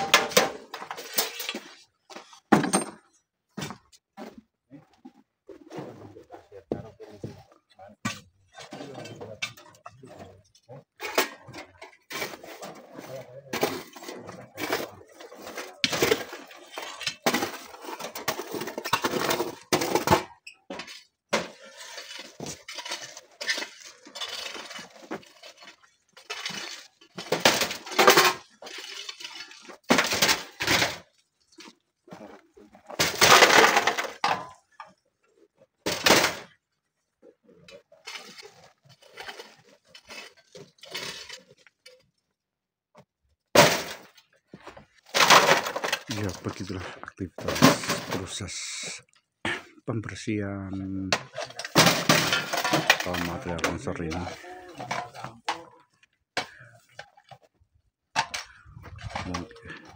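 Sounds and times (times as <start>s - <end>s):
rocks clattering into wheelbarrow: 43.6s - 48.9s, 51.0s - 57.5s.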